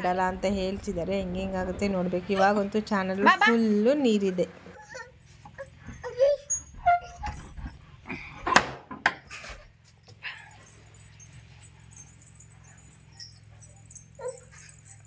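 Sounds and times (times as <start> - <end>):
keys jangling: 9.1 - 15.0.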